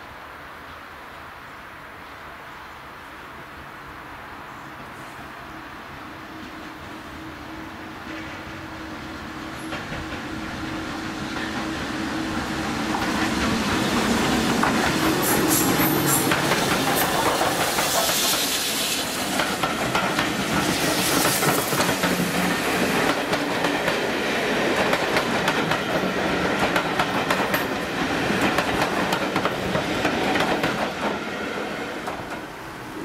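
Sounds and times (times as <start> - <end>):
train wheels clattering: 9.6 - 10.4, 12.5 - 32.6.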